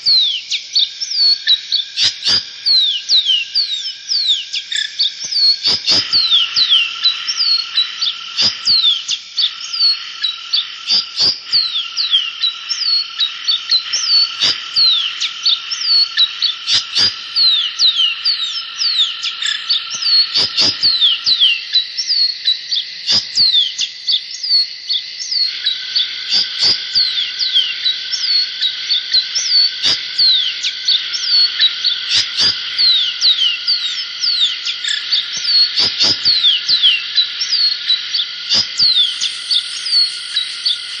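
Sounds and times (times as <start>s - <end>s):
whistled animal chirps: 0.0s - 41.0s
high-pitched drone: 38.4s - 41.0s.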